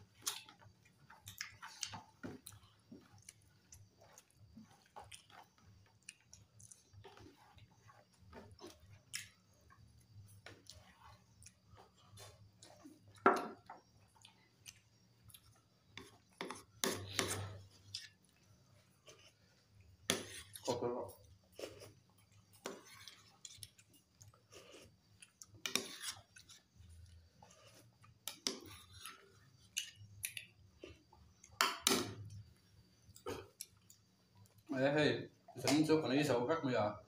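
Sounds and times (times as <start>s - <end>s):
people chewing and eating: 0.0s - 34.7s.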